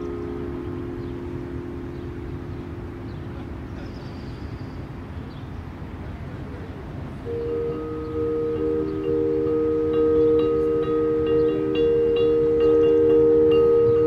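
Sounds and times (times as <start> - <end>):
chime tones: 0.0 - 5.0.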